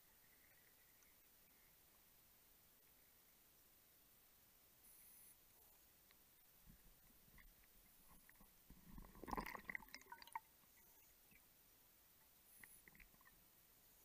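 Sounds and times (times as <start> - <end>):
underwater clicks and crackles: 6.1 - 10.5, 12.6 - 13.4.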